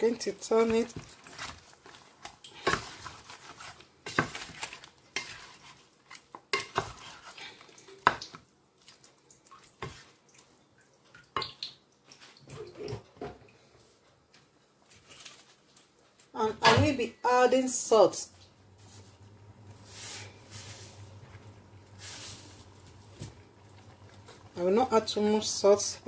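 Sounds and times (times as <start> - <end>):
spoon stirring meat in pot: 0.1 - 12.9
spoon knocking and scraping pot: 5.2 - 7.4.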